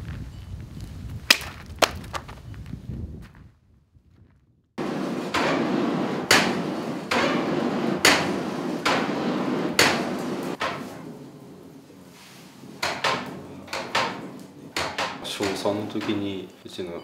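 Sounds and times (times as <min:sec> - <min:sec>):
rush of air and fire: 0:04.8 - 0:12.8
wooden bellows clacking: 0:12.7 - 0:16.6.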